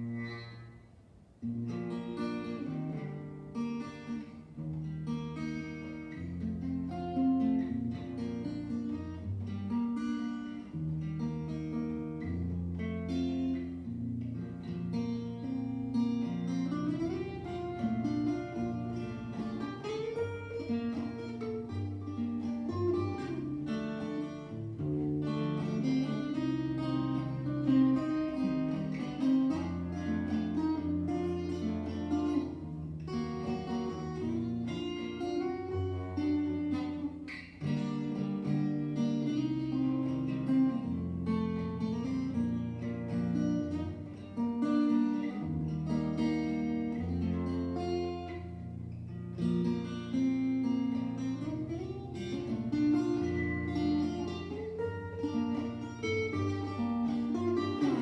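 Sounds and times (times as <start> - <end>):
acoustic guitar picking: 0.0 - 58.0.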